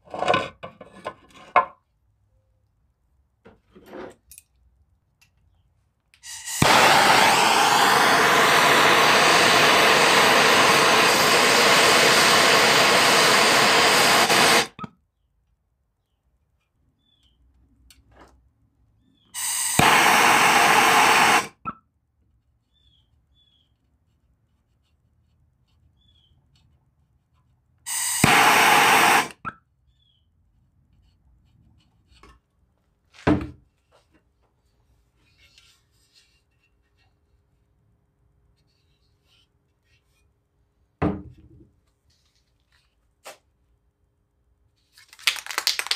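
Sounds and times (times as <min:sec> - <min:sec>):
pressurised spray hissing: 0:06.2 - 0:14.8, 0:19.4 - 0:21.6, 0:27.9 - 0:29.4.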